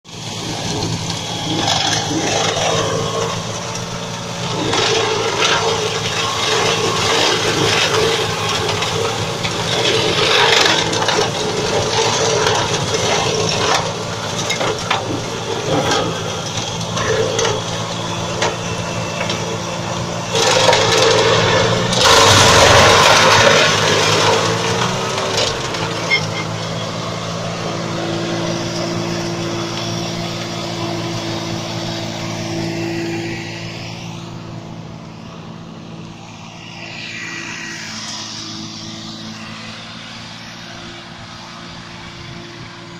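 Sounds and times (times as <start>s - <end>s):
tractor engine under load: 0.0s - 42.9s
flail mulcher churning: 0.1s - 33.8s.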